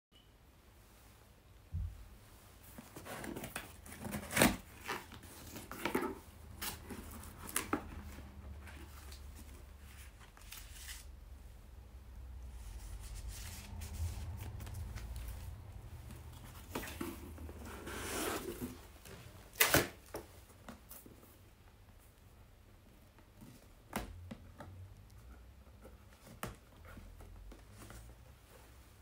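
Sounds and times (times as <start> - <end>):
cardboard box being opened: 2.8 - 11.0, 16.1 - 20.1
paper rustling: 2.8 - 11.2, 12.5 - 20.3.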